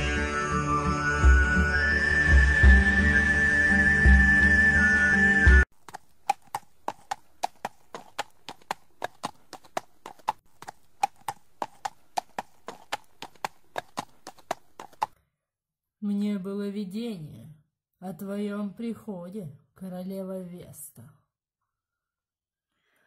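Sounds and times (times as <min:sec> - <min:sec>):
hollow clip-clop footfalls: 0:05.7 - 0:15.2.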